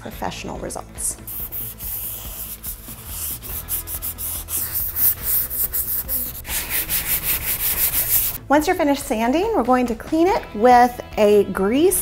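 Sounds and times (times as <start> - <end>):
sanding block on painted steel: 1.3 - 8.4.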